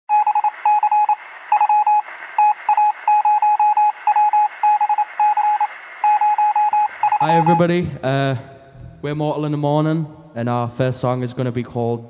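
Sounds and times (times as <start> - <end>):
electronic beeps: 0.1 - 7.8.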